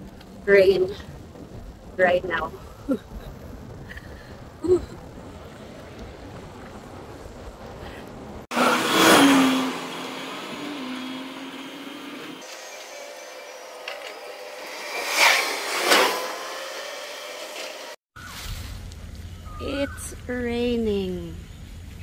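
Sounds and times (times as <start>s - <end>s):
wind and road noise: 0.0s - 22.0s
motor vehicle passing: 5.2s - 18.0s.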